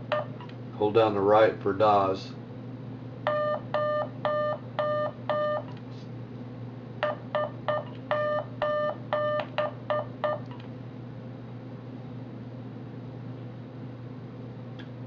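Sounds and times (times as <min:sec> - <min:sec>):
morse code beeps: 0:03.3 - 0:05.7, 0:07.0 - 0:10.4.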